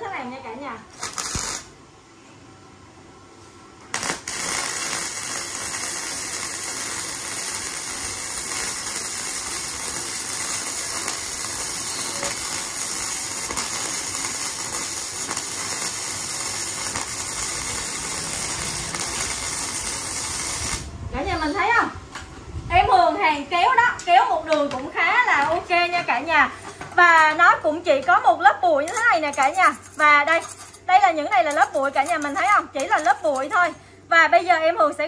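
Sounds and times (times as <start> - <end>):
welding arc crackling: 0.9 - 1.8, 3.9 - 20.9, 28.9 - 30.7, 31.4 - 33.8.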